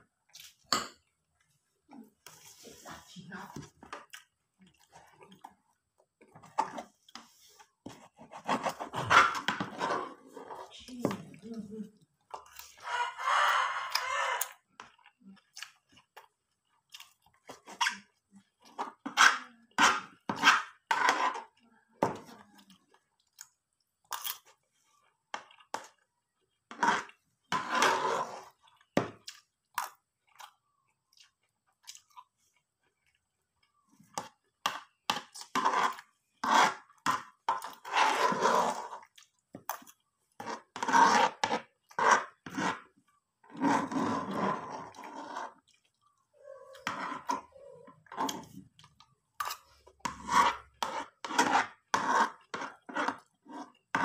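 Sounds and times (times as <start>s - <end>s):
person chewing crunchy food: 12.4s - 18.8s, 28.2s - 37.9s, 38.6s - 54.0s.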